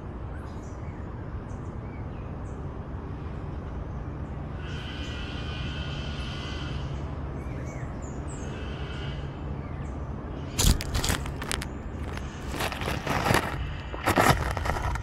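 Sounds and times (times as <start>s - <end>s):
camera scraping over gravelly sand: 10.6s - 15.0s.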